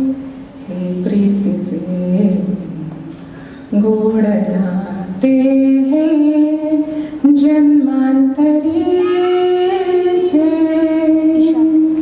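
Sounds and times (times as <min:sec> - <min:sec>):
woman singing into microphone: 0:00.0 - 0:03.0, 0:03.7 - 0:12.0.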